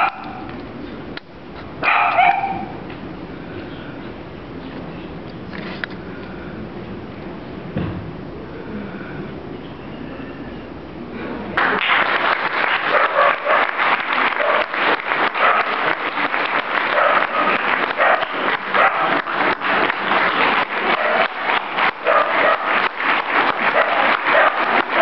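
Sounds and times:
audience applauding: 11.6 - 25.0.

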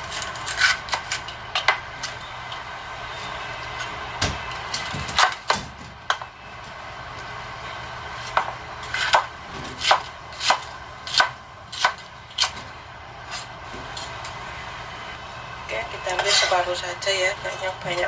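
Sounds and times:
knife chopping on plastic board: 8.3 - 12.7.

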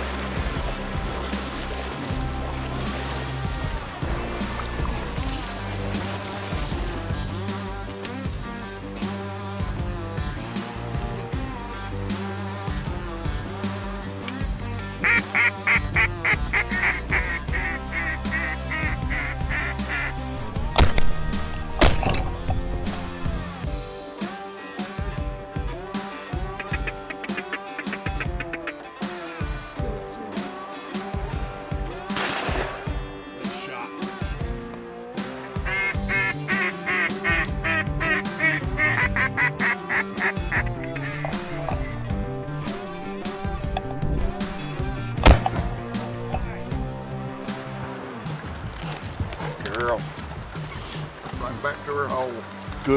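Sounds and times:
background music: 0.0 - 52.9
duck call quacks: 15.0 - 20.2, 26.5 - 28.8, 35.5 - 41.5.

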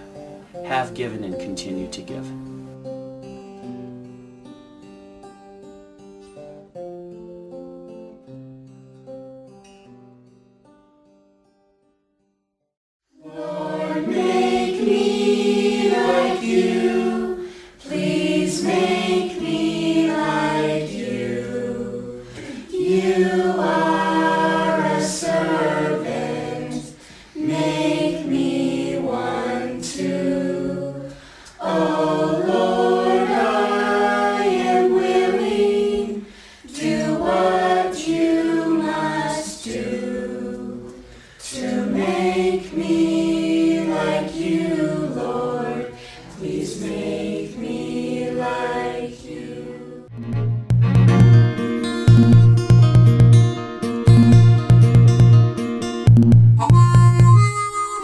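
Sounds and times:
adults and children singing: 13.2 - 50.1.

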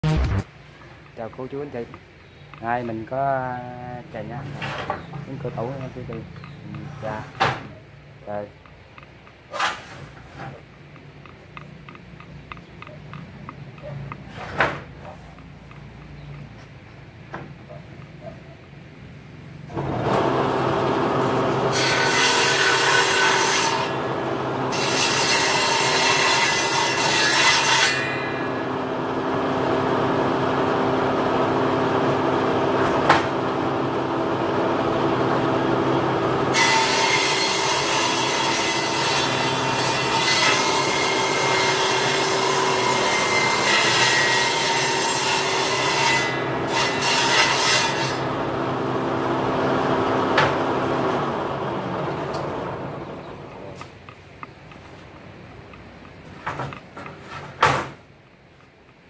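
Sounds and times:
electric sander abrading wood: 19.8 - 21.8, 23.8 - 24.7, 28.5 - 36.6.

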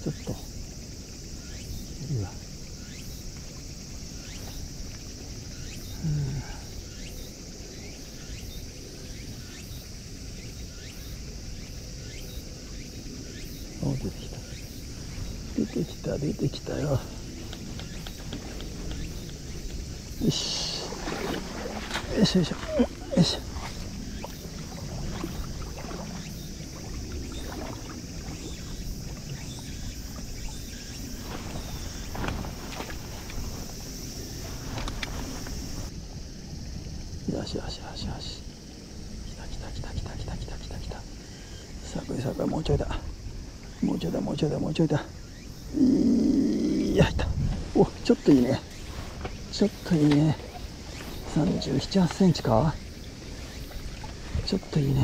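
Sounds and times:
insects droning: 0.0 - 55.0
faint ticks: 16.9 - 20.8, 34.4 - 35.9
wind noise on microphone: 46.5 - 49.5.

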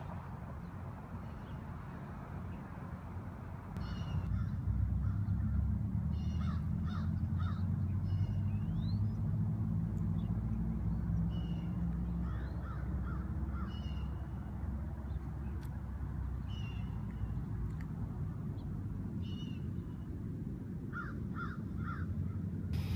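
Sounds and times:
birds calling: 3.8 - 9.3
steady low rumble: 17.0 - 22.9.

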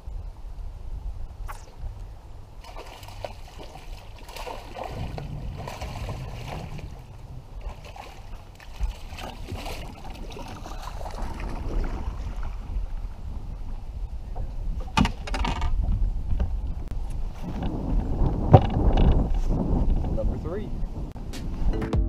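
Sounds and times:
wind buffeting microphone: 0.0 - 21.8
waves lapping against boat hull: 2.6 - 20.1.

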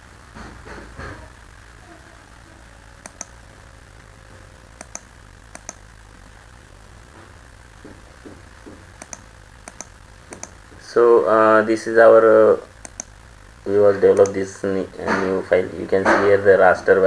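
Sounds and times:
steady low hum: 0.0 - 17.0
mouse button clicking: 3.0 - 3.3, 4.8 - 5.8, 9.0 - 10.6, 12.8 - 13.1.

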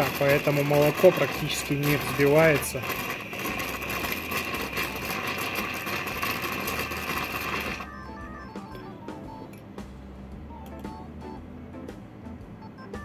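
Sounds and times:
milk frother hissing and sputtering: 0.0 - 7.9
faint music: 0.0 - 13.0.

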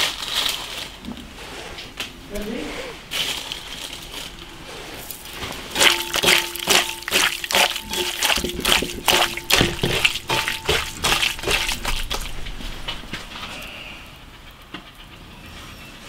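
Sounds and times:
hands squelching raw meat: 5.0 - 13.3.

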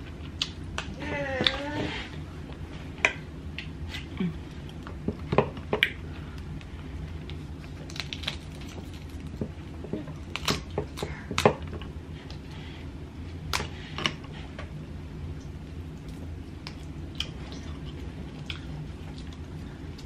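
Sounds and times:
crab shell cracking: 7.8 - 9.4.

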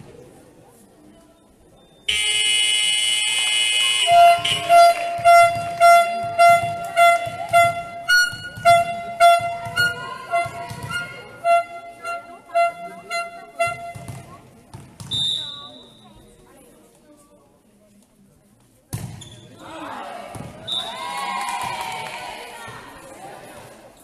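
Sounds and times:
loud buzzer: 2.1 - 14.1
music with steady beat: 4.2 - 14.2.

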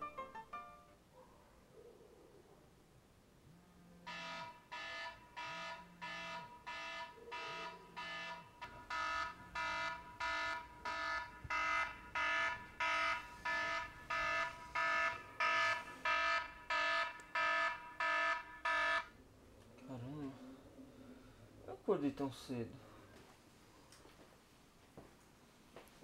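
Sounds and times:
phone alarm buzzy pulsing tone: 4.1 - 19.2.

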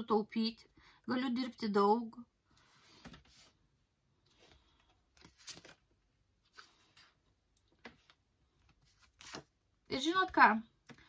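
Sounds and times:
cards rustling: 4.3 - 9.6.

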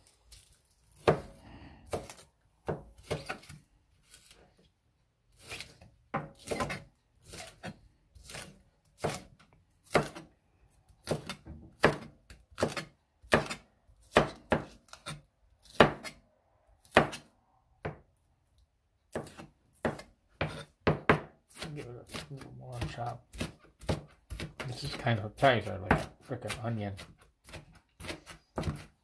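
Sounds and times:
knife chopping on cutting board: 1.0 - 3.6, 5.4 - 10.3, 11.0 - 16.2, 16.8 - 18.0, 19.1 - 29.0.

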